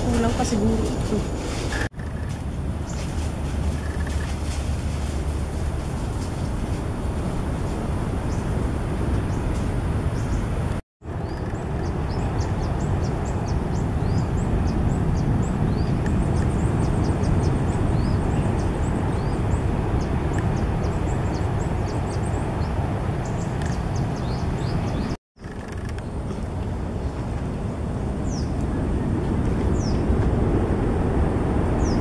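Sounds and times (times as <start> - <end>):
steady low rumble: 0.0 - 25.2, 25.9 - 32.0
birds chirping: 9.2 - 25.2, 28.2 - 30.1.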